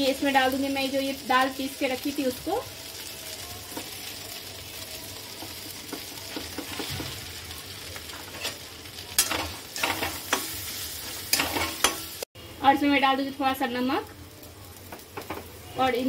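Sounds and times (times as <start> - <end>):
hot oil sizzling in a metal pan: 0.0 - 16.0
steel spatula scraping a pan: 8.1 - 12.1.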